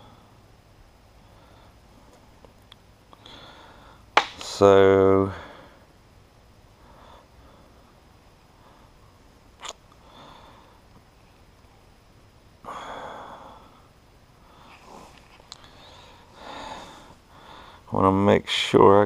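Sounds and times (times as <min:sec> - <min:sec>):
person sniffing: 0:14.6 - 0:17.2.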